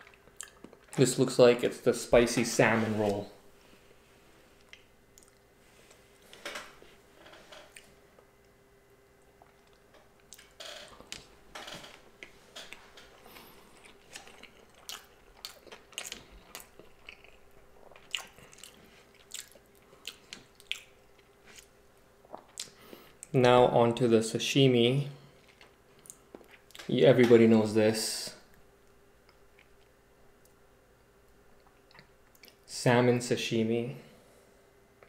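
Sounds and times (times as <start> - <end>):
wet chewing mouth sounds: 9.2 - 10.5, 13.1 - 22.8.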